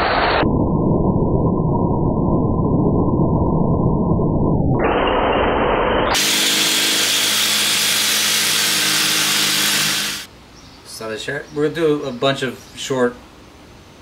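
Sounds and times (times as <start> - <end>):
jigsaw cutting metal: 6.1 - 10.3.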